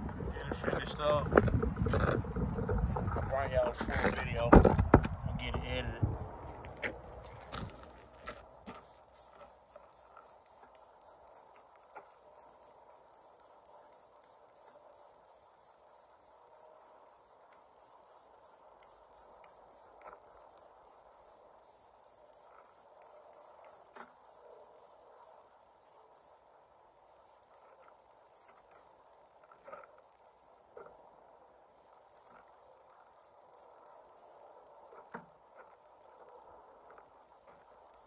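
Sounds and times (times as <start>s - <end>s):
insects chirping: 8.6s - 38.0s.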